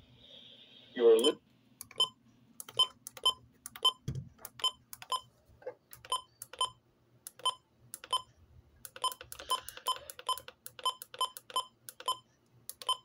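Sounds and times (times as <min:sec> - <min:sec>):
short electronic beeps: 0:09.0 - 0:13.0.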